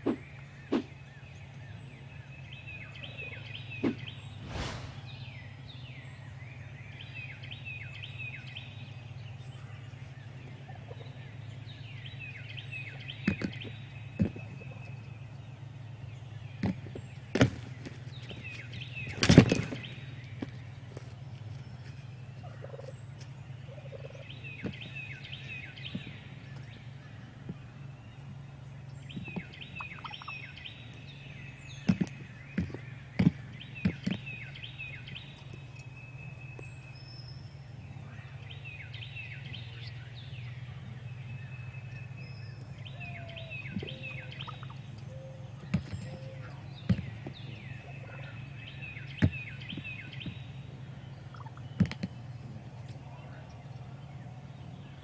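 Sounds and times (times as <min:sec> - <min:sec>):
low hum: 0:03.8 - 0:06.3
turkey gobbling: 0:22.4 - 0:22.9, 0:23.7 - 0:24.2, 0:44.4 - 0:44.8, 0:51.3 - 0:51.6.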